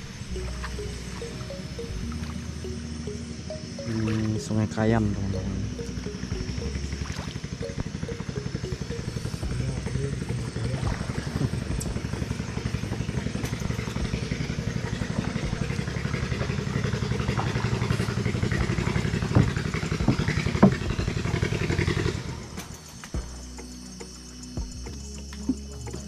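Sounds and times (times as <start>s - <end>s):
boat motor puttering: 0.0s - 26.0s
sharp knocks: 19.3s - 21.0s.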